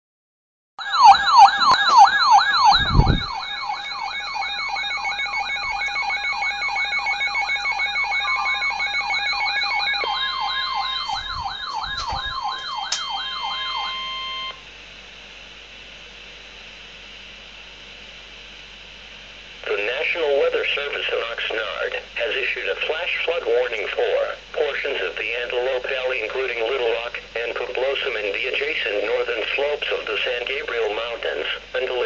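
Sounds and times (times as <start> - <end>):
warbling siren alarm: 0.8 - 14.6
steady warning tone: 0.8 - 14.7
radio hiss: 19.5 - 32.0.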